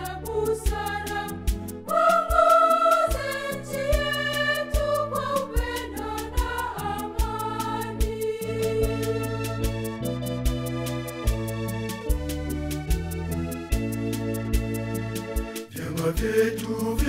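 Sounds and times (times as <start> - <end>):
choir singing gospel: 0.0 - 10.1, 15.7 - 17.0
instrumental backing with drum beat: 0.0 - 17.0.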